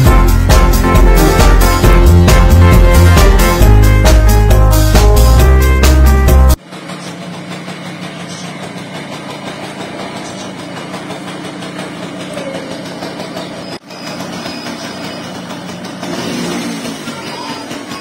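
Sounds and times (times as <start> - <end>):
two-stroke engine idling: 6.5 - 18.0.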